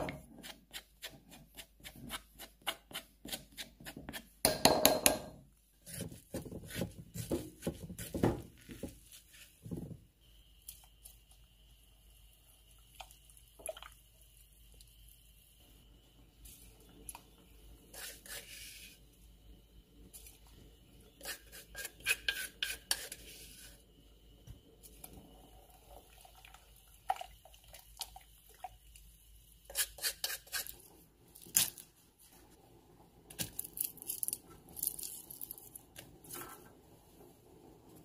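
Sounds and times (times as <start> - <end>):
spoon knocking and scraping pot: 2.0 - 9.0.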